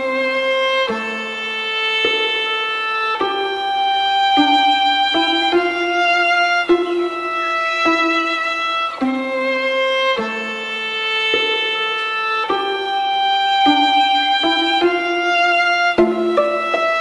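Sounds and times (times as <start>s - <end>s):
slow melody of held notes: 12.6s - 17.0s.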